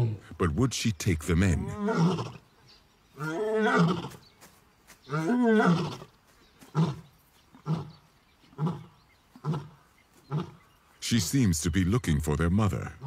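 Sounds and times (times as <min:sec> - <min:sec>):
lioness grunting: 0:01.4 - 0:02.4, 0:06.7 - 0:10.7
lioness roaring: 0:01.6 - 0:02.4, 0:03.2 - 0:04.1, 0:05.1 - 0:06.1.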